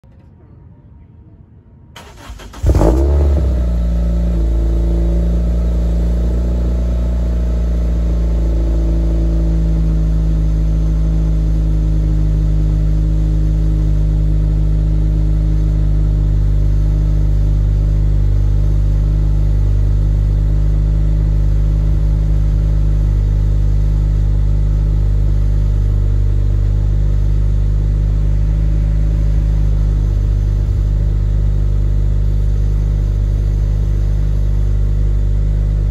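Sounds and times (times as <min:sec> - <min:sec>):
car engine starting and idling: 0:02.0 - 0:35.9.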